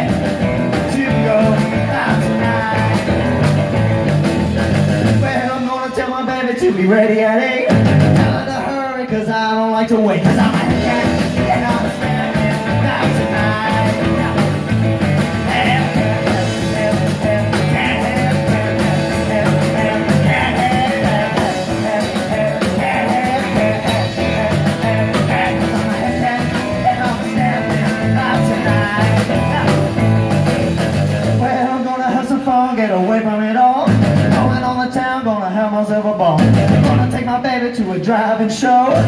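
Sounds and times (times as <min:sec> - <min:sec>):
bouncing bass line: 0:00.0 - 0:05.4, 0:10.3 - 0:31.5, 0:33.9 - 0:34.8, 0:36.4 - 0:37.3
drum kit: 0:00.0 - 0:35.2, 0:36.1 - 0:37.9
electric guitars: 0:00.0 - 0:35.3, 0:36.0 - 0:39.0.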